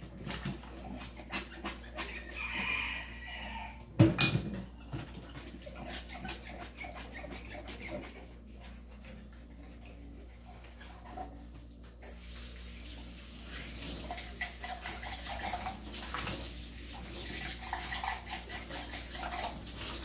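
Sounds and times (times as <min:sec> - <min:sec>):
sponge scrubbing dishes: 0:00.0 - 0:03.4, 0:05.0 - 0:20.0
dishes clinking and knocking: 0:04.0 - 0:04.7
loud clatter of dishes: 0:04.0 - 0:04.7.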